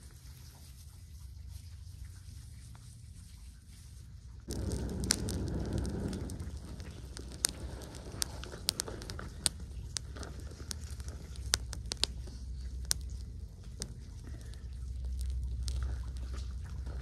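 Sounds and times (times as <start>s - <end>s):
fire crackling and popping: 4.5s - 17.0s
low rumble: 4.5s - 17.0s.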